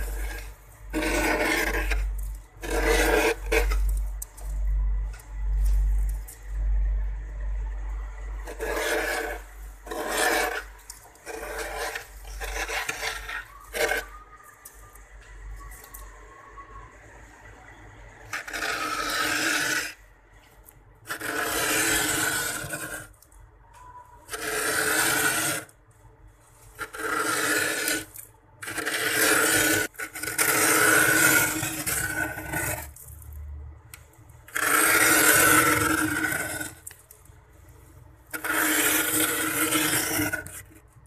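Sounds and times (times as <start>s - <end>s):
cup rim scraping frost: 0.0s - 4.8s, 8.3s - 15.0s, 18.2s - 20.0s, 21.0s - 23.3s, 24.2s - 25.8s, 26.4s - 33.3s, 34.5s - 41.0s.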